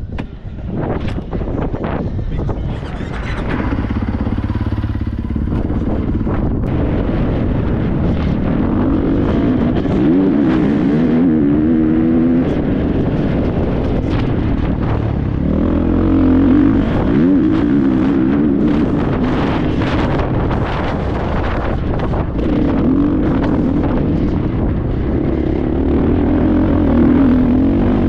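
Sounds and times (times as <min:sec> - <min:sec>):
wind on microphone: 0:00.0 - 0:28.0
dirt bike engine revving: 0:03.0 - 0:28.0.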